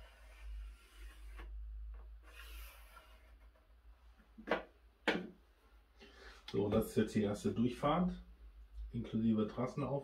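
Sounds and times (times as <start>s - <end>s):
pencil scratching on board: 0.0s - 1.6s.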